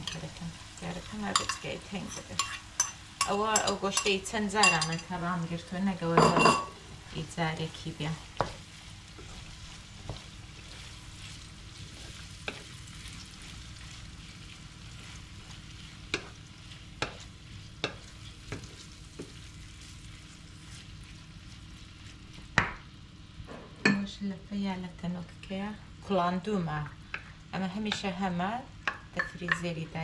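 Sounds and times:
meat sizzling in a pan: 0.0 - 23.2
spatula scraping a pan: 1.3 - 3.0.

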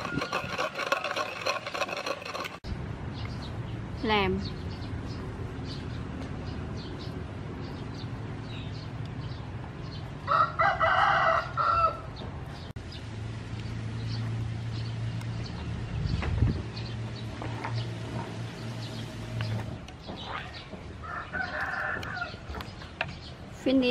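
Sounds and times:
rooster crowing: 10.2 - 12.1, 21.0 - 22.4.

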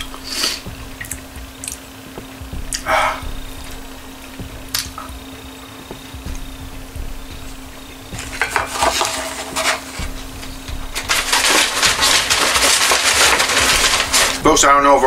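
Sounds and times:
paper bag rustling: 8.1 - 14.6
cardboard box crackling: 8.2 - 14.4.

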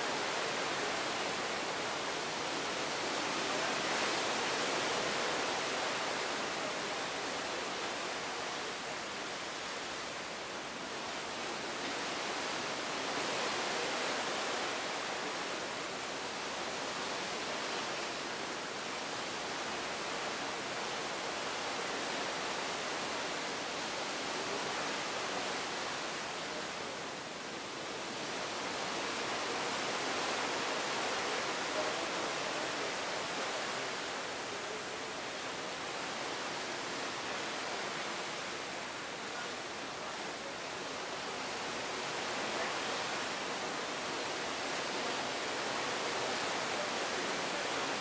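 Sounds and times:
sea water rushing past hull: 0.0 - 48.0.

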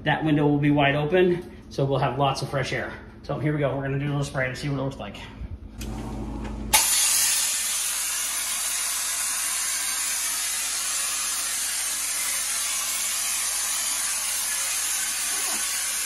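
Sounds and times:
spray gun hissing: 6.7 - 16.0.

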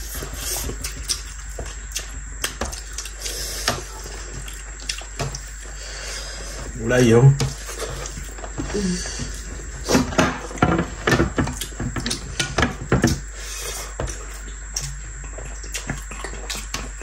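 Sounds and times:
wet chewing and smacking: 0.0 - 5.8, 7.5 - 8.5, 14.0 - 17.0.

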